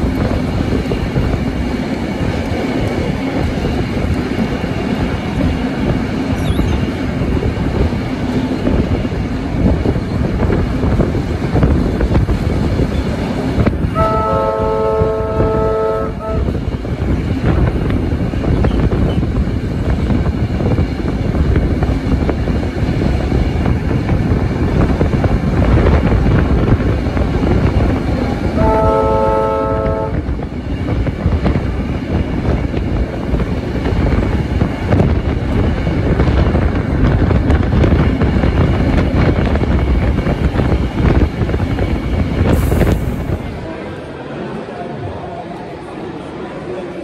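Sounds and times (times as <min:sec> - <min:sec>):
train rumbling: 0:00.0 - 0:47.0
train horn chord: 0:13.9 - 0:16.6, 0:28.6 - 0:30.2.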